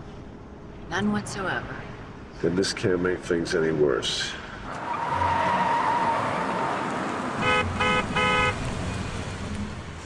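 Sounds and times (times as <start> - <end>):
car engine and tyre noise: 1.9 - 10.0
car horn honks: 7.4 - 8.7.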